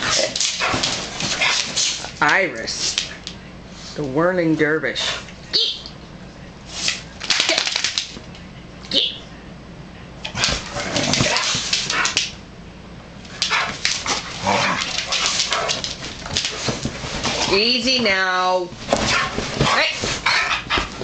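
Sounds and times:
dogs growling and snarling: 0.0 - 2.2, 10.3 - 12.2, 13.3 - 17.6, 19.0 - 21.0.

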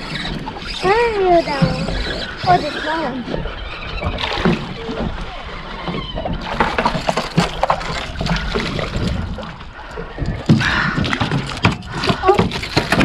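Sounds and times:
water sloshing against boat: 0.0 - 13.0
knocks and rattles: 5.9 - 9.5, 10.2 - 13.0.

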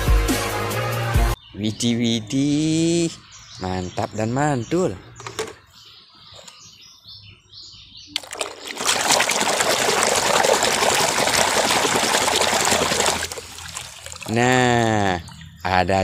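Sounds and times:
bubbling foam crackle: 8.2 - 14.6
hand sloshing in soapy water: 8.2 - 15.4.

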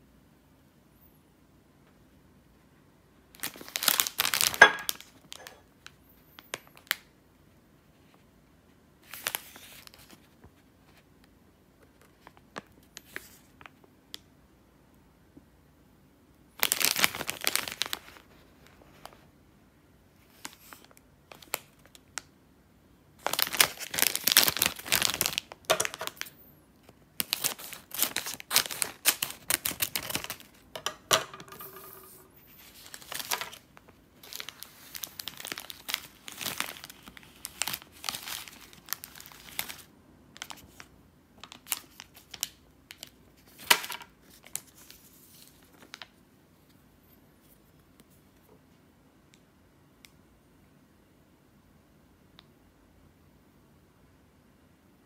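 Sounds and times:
plastic bag crinkling: 3.3 - 5.7, 16.6 - 18.3, 23.2 - 26.4, 27.2 - 40.9.

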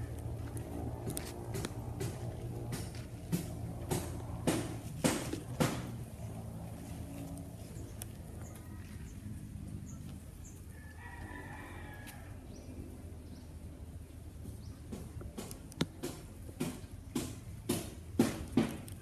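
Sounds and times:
steady low rumble: 0.0 - 10.8
rooster crowing: 10.7 - 12.6.

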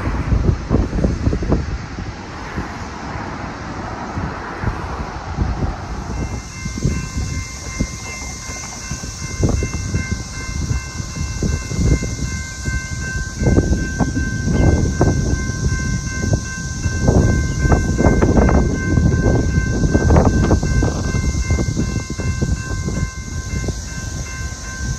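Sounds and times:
train rumble and clatter: 0.0 - 24.9
crossing bell ringing: 5.6 - 24.9.

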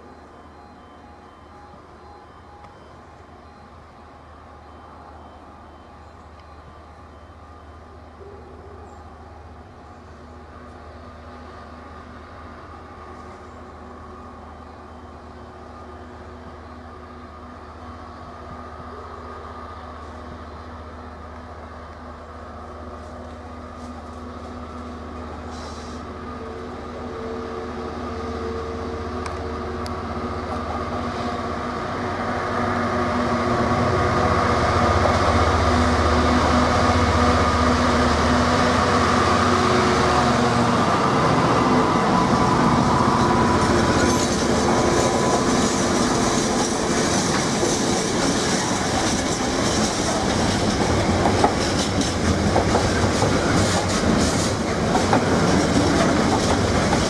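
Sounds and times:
diesel locomotive engine: 0.0 - 57.0.

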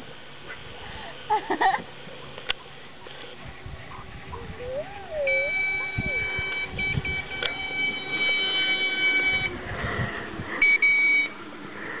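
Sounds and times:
high-pitched electronic beep: 4.7 - 8.5.

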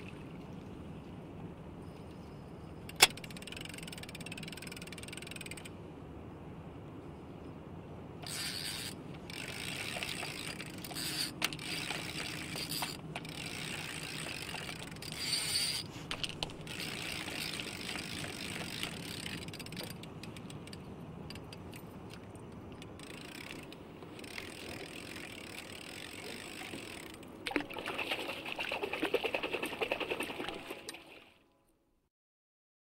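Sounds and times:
fishing reel ratchet clicking: 2.9 - 5.7, 8.2 - 21.8, 22.8 - 27.2.

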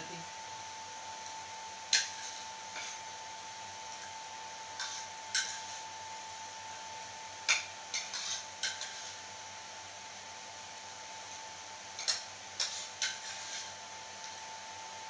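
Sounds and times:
spoons clinking on plates: 1.9 - 3.0, 4.8 - 5.8, 7.5 - 9.2, 12.0 - 13.7.

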